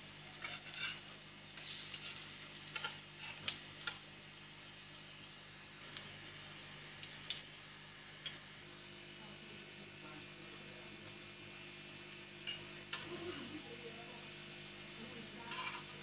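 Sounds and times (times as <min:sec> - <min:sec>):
food sizzling in oil: 0:00.1 - 0:08.3
metal utensils clicking on pan: 0:15.5 - 0:15.9.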